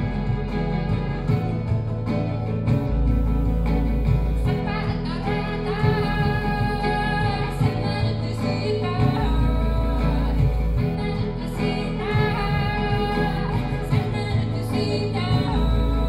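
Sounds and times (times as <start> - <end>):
deep sustained bass note: 0.0 - 5.2
acoustic guitar: 0.0 - 16.0
woman singing: 4.4 - 16.0.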